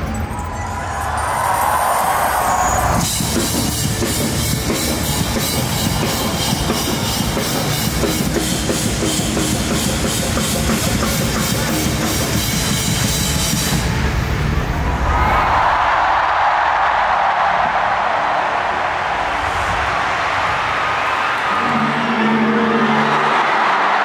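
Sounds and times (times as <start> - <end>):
heavy rock band playing: 3.0 - 14.5.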